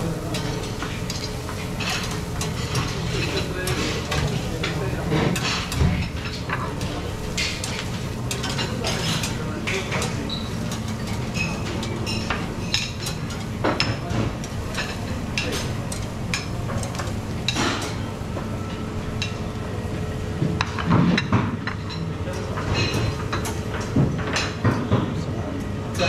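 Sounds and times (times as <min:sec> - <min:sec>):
utensils clinking against metal pans: 0:00.0 - 0:19.4, 0:20.6 - 0:25.2
steady low hum: 0:00.0 - 0:26.0.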